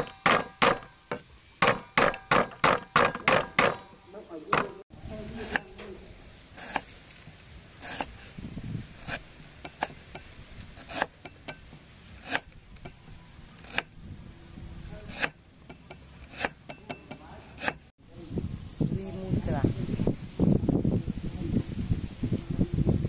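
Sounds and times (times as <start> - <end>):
cleaver chopping on wooden board: 0.0 - 3.9, 9.0 - 13.0, 15.0 - 17.8.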